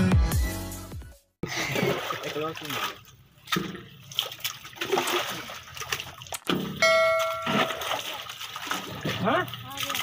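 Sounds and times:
electronic bell-like ding: 6.8s - 7.9s.

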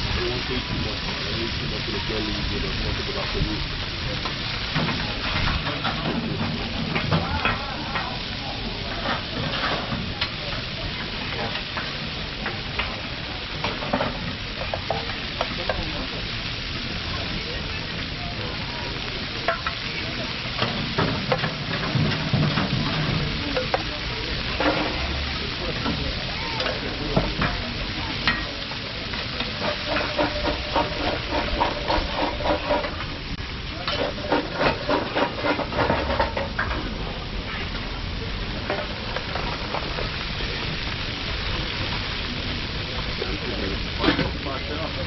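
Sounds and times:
chicken sizzling on a griddle: 0.0s - 45.0s
metal spatula scraping and tapping: 19.5s - 19.9s, 29.4s - 33.0s, 33.8s - 36.8s.

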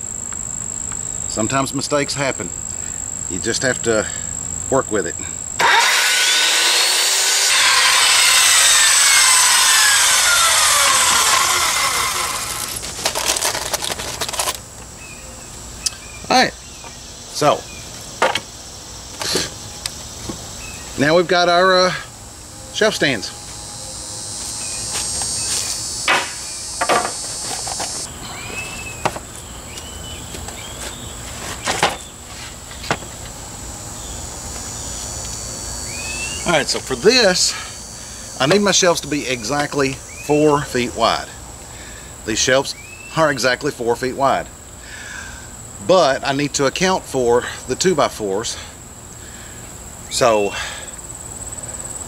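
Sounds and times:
high insect drone: 0.0s - 52.0s
circular saw cutting wood: 5.5s - 13.6s, 22.8s - 28.1s
sharp clicks and rattles: 11.1s - 14.6s
wooden board knocking on sawhorses: 26.1s - 27.9s.

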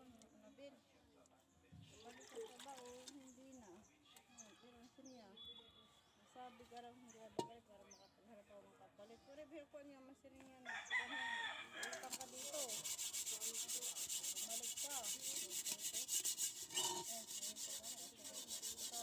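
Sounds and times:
rooster crowing: 10.7s - 12.1s
hand scrubbing metal pot: 12.0s - 19.0s.

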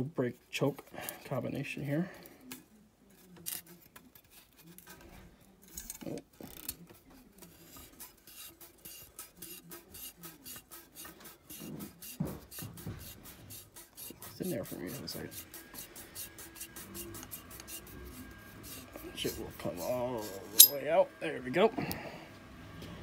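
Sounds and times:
steel threads rasping: 7.4s - 20.9s.

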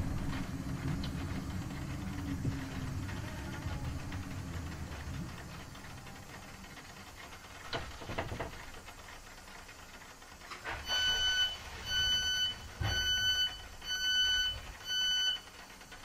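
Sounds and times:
dull knocks from train: 7.7s - 8.7s
train door warning beeps: 10.7s - 15.6s.

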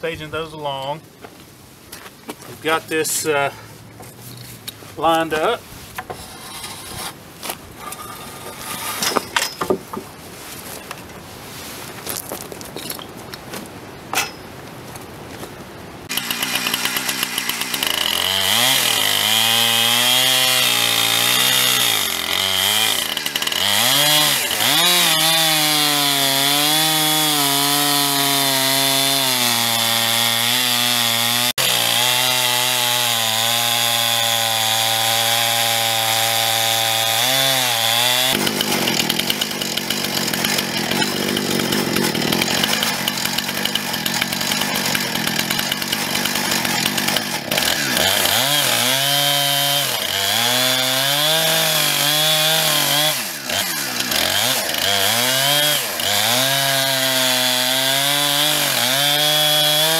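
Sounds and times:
chainsaw ripping a log: 16.1s - 59.9s.

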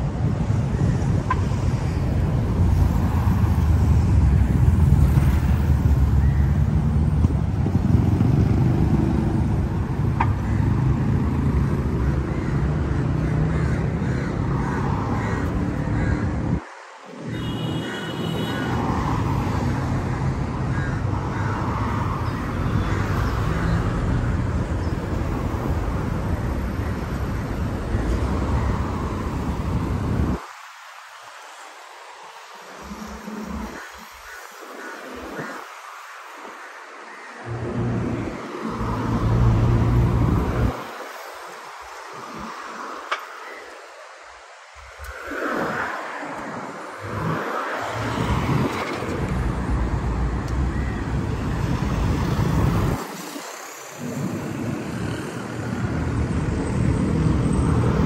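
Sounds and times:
wind rumble on microphone: 0.0s - 12.6s, 44.8s - 58.0s
cars passing: 0.0s - 58.0s.

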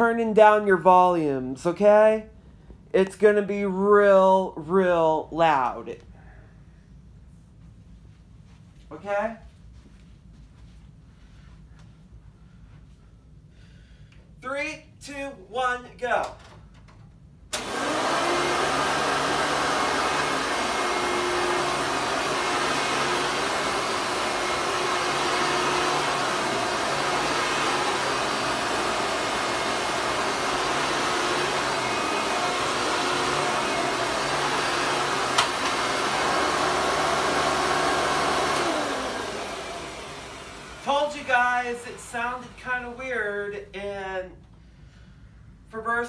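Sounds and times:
upright vacuum cleaner running: 17.5s - 43.2s.

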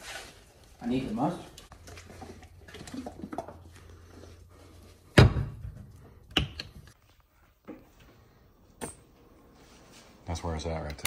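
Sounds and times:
kitchen thunks: 5.1s - 6.6s.

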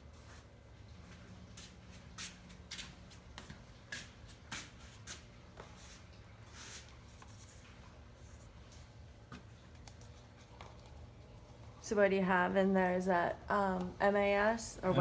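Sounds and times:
rustles at a workbench: 0.1s - 8.6s.

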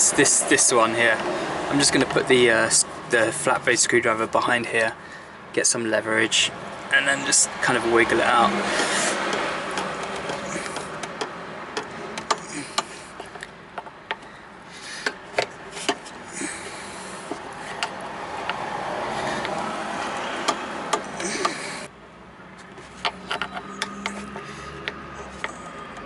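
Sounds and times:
steady background noise: 0.0s - 26.0s.

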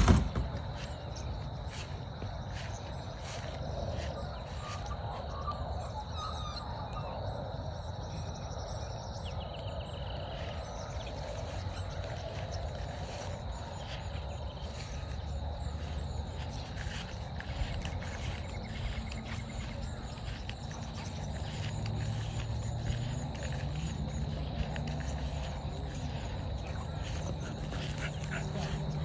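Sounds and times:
insects chirping: 0.0s - 29.0s
steady low rumble: 7.3s - 29.0s.

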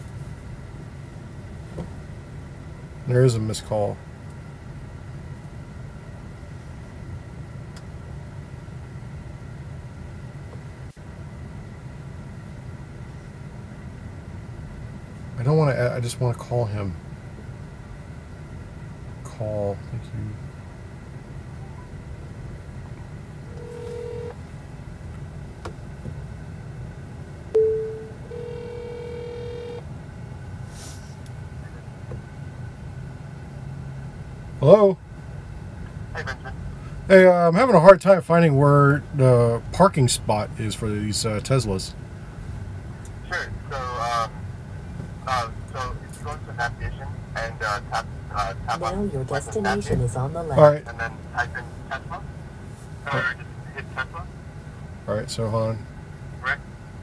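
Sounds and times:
low hum of car cabin: 0.0s - 57.0s
phone ringback tone: 23.5s - 24.3s, 27.6s - 29.8s
short sharp tone: 27.6s - 29.8s.

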